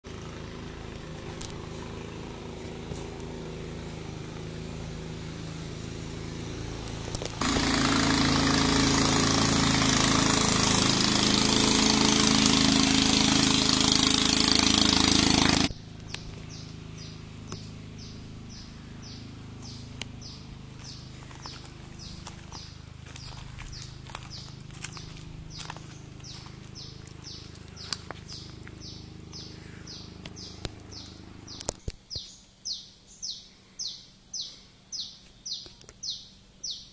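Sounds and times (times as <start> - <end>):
loud machine noise: 0.1 - 31.7
low steady hum: 15.7 - 36.7
footsteps on gravel: 15.9 - 29.7.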